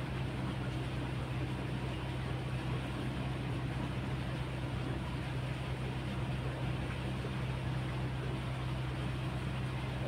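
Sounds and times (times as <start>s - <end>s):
low engine hum: 0.0s - 10.0s.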